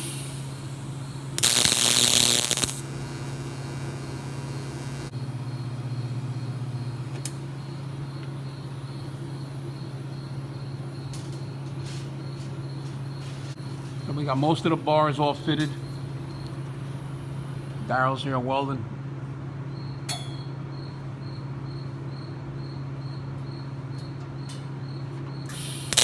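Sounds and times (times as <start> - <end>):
arc welding: 0.0 - 5.1, 25.5 - 26.0
steady low hum: 0.0 - 26.0
welder click: 1.4 - 2.8.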